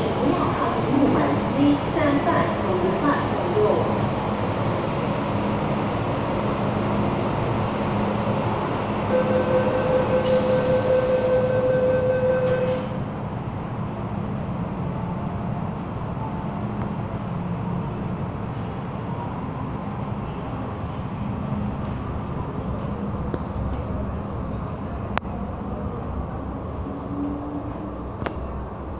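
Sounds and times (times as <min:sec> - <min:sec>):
train rumbling: 0:00.0 - 0:28.9
pulsing warning tone: 0:09.1 - 0:12.9.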